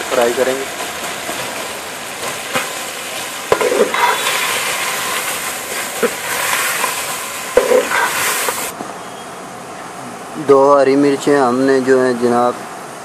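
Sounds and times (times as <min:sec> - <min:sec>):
chicken sizzling in a pot: 0:00.0 - 0:08.8
metal ladle scraping a pot: 0:03.6 - 0:05.3.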